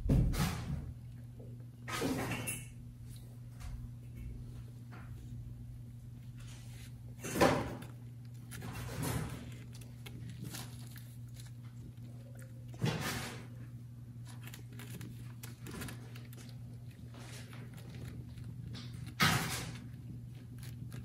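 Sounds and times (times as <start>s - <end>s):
steady low hum: 0.0s - 21.0s
rustling in wicker basket: 4.4s - 21.0s.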